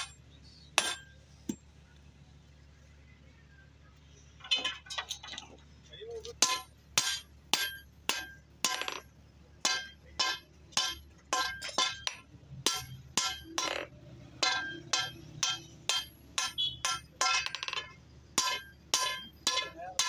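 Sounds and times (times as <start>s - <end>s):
hammer striking steel on anvil: 0.0s - 0.2s, 0.8s - 1.6s, 6.4s - 20.0s.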